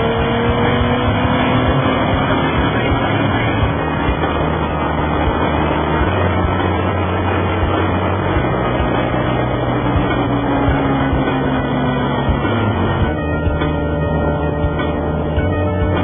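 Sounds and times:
vehicle engine running: 0.0 - 16.0
wind rushing: 0.5 - 11.6.

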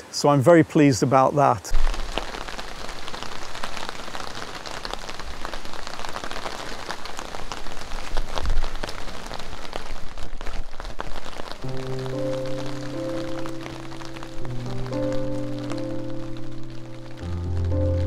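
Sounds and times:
light rain pattering: 0.0 - 18.0
soft music with held notes: 11.6 - 18.0.

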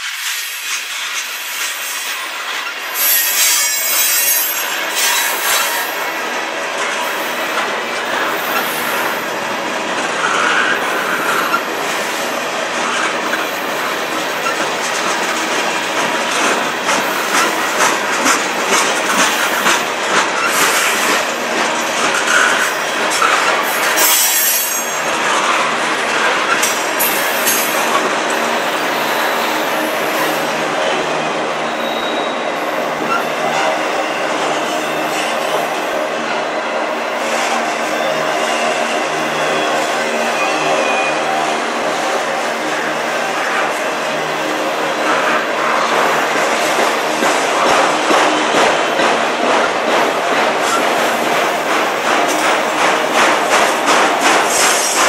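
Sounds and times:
train wheels rumbling and clicking: 0.0 - 55.0
wheel squeal: 3.0 - 5.8, 31.7 - 32.4.

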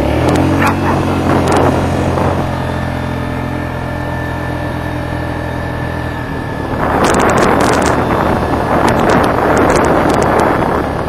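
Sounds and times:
engine running steadily: 0.0 - 11.0
wind buffeting on microphone: 0.1 - 11.0.

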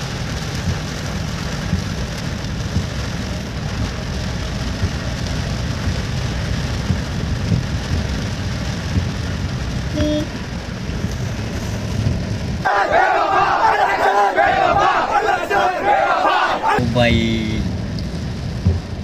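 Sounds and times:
heavy rain drumming on car roof: 0.0 - 19.0
short beep: 10.0 - 10.3
low rumble: 16.8 - 19.0.

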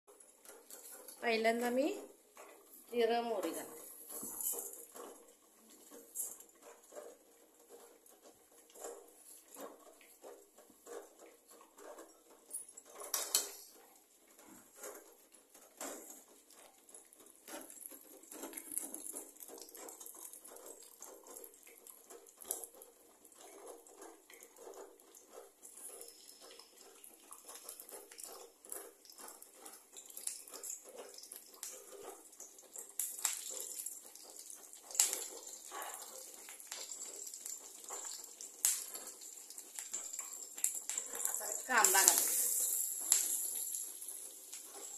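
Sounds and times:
seeds crackling in hot oil: 0.1 - 44.9.

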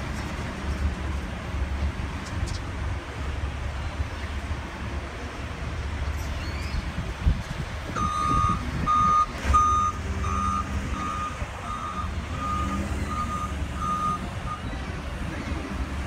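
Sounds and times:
diesel engine rumble: 0.0 - 16.0
reverse alarm beeping: 8.0 - 14.7.

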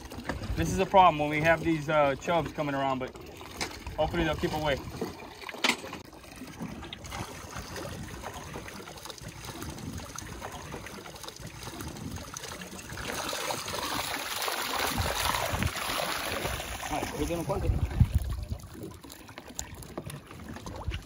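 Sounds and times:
seawater splashing through net: 6.4 - 19.4
wind rumble: 14.8 - 19.0.

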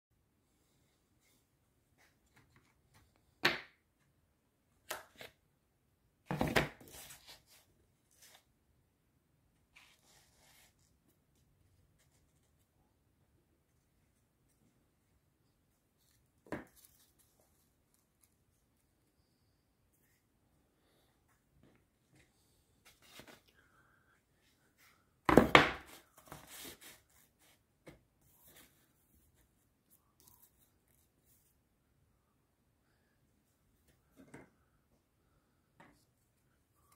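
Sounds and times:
foam board pieces knocking: 25.3 - 26.0.

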